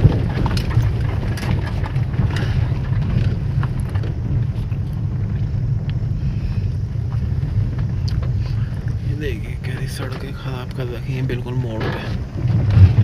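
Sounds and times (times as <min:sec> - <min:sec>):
car engine and tyre rumble: 0:00.0 - 0:13.0
stones clicking under tyres: 0:00.0 - 0:13.0.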